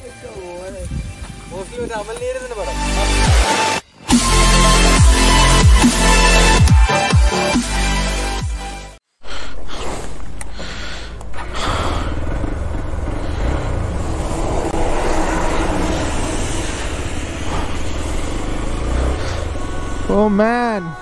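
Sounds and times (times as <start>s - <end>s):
wind rushing over microphone: 0.7s - 2.0s
motorcycle engine running: 10.7s - 21.0s.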